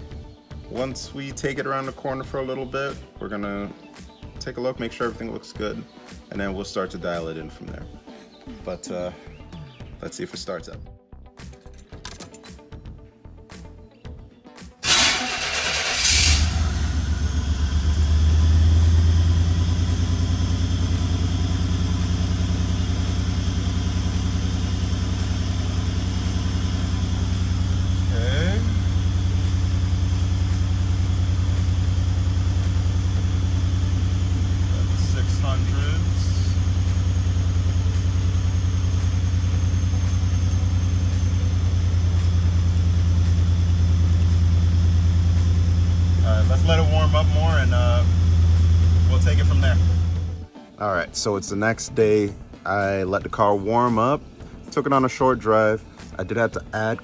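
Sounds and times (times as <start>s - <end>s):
car engine cranking and idling: 14.8s - 50.4s.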